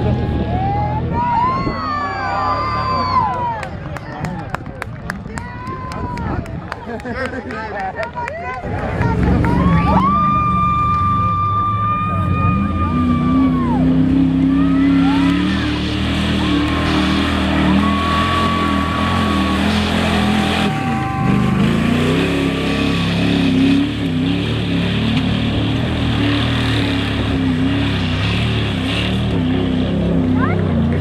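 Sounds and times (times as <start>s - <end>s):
truck engine revving hard: 8.7s - 31.0s.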